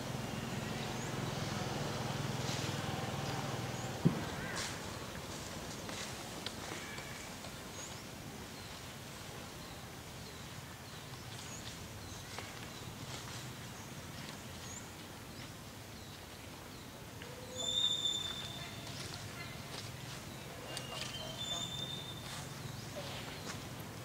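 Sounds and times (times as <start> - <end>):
steady low background noise: 0.0 - 24.0
small birds chirping: 7.0 - 23.8.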